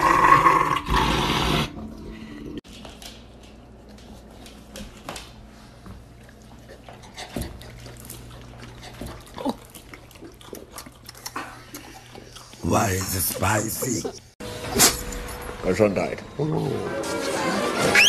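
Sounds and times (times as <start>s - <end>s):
dogs licking and smacking mouths: 5.8s - 14.1s.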